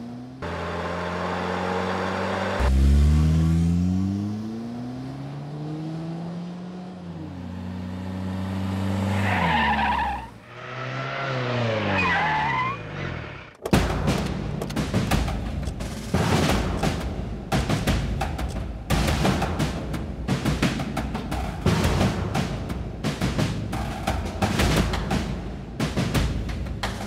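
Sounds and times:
engines accelerating: 0.0s - 13.9s
tyres squealing: 9.0s - 13.5s.

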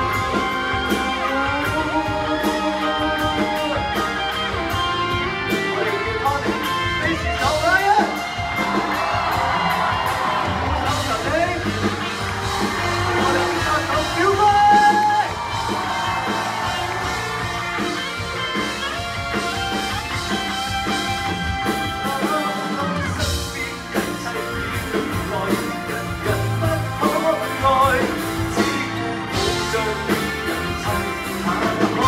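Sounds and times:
bass guitar: 0.0s - 32.0s
drums: 0.0s - 32.0s
electric guitar: 0.0s - 32.0s
lead vocal singing: 21.7s - 32.0s.

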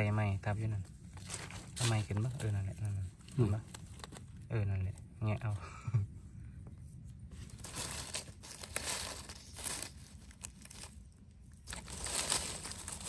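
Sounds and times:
dry leaves crackling and rustling: 7.4s - 13.0s.

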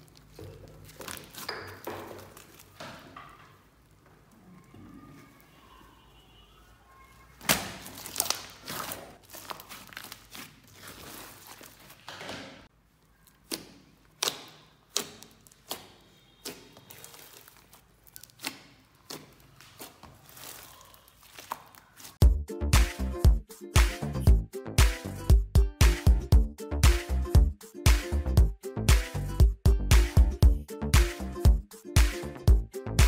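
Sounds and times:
slime squished by hand: 13.1s - 22.2s.

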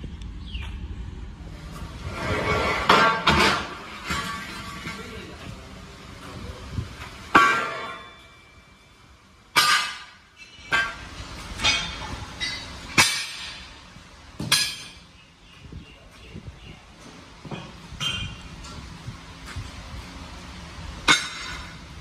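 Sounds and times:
sharp strikes on metal: 9.5s - 12.1s.

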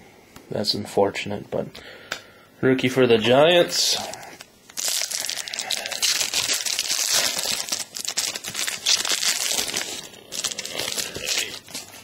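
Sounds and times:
card pack wrapper crinkling and tearing: 3.9s - 12.0s.

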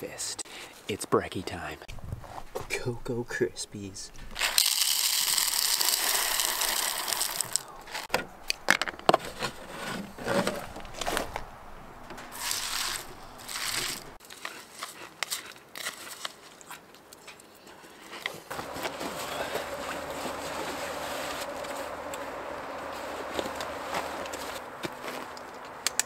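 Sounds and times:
cereal pouring into plastic bowl: 4.4s - 7.7s, 12.4s - 14.0s
handling knocks and rustles: 7.8s - 15.0s, 15.8s - 26.0s.

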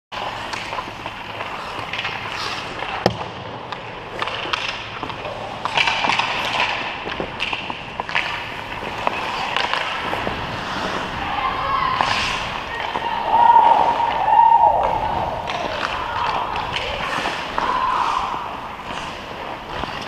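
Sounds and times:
skates scraping on ice: 0.2s - 20.0s.

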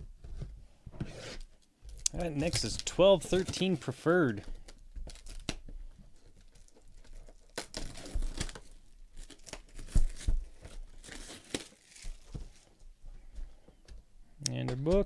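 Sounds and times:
plastic shrink wrap crinkling: 1.9s - 12.8s.

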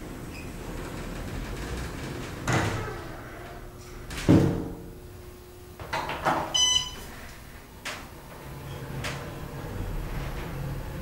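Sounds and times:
elevator doors sliding and shutting: 0.0s - 4.8s, 6.0s - 11.0s
short electronic beep: 6.6s - 7.0s.

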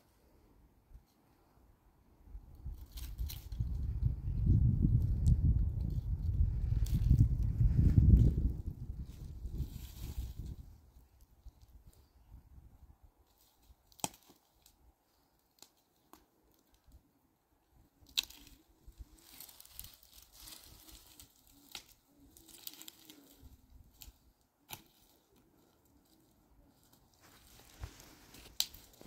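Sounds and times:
rustling: 6.4s - 12.2s, 18.0s - 29.0s.

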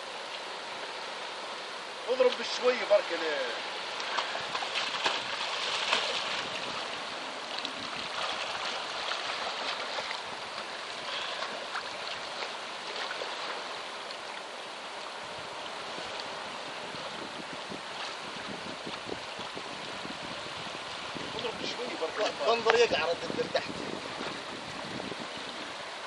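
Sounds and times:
water splashing from fin kicks: 3.9s - 14.4s.

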